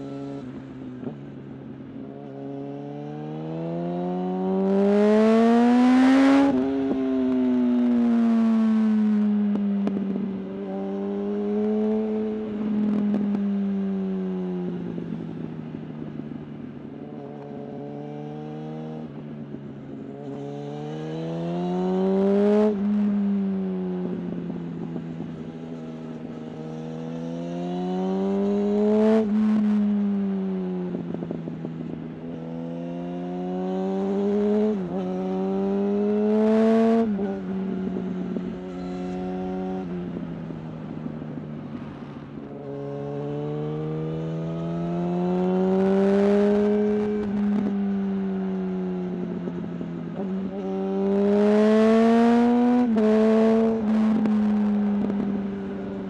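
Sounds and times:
motorcycle engine revving: 0:02.1 - 0:15.4, 0:20.2 - 0:56.0.

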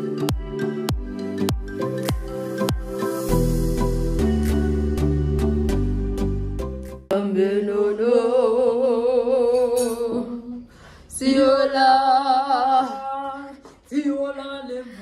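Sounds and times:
woman singing with vibrato: 0:07.1 - 0:15.0.

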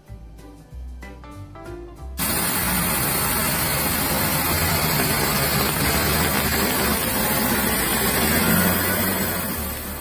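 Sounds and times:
rushing hiss: 0:02.2 - 0:09.8
dump truck engine drone: 0:02.2 - 0:10.0.

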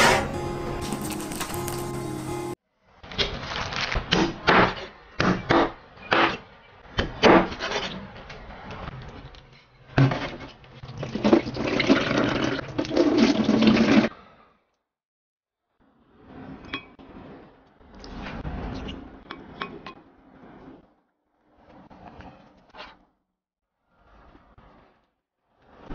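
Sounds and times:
water splashing into a sink: 0:10.8 - 0:14.1.

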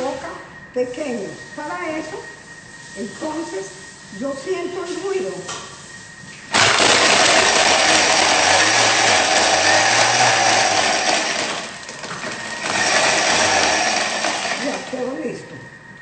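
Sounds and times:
food processor chopping ice: 0:06.5 - 0:15.1.

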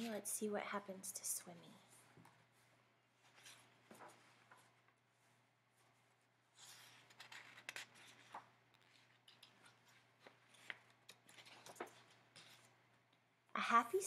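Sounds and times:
paper page turning: 0:06.5 - 0:12.8.

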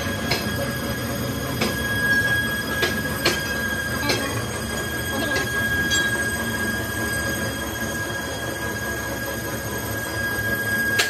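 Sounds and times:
high-pitched machine whine: 0:00.0 - 0:11.0.

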